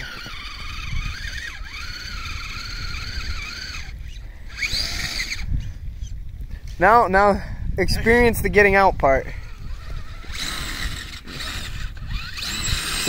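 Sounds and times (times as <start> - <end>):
electric motor whining: 0.0 - 6.2, 9.4 - 13.0.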